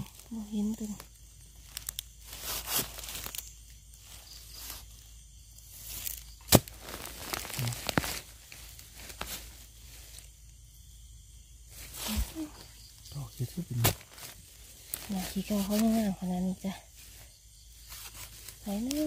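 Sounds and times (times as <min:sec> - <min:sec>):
dry leaves and twigs crackling: 0:00.0 - 0:19.0
twig snapping: 0:00.8 - 0:03.8, 0:05.9 - 0:09.4, 0:13.8 - 0:15.9.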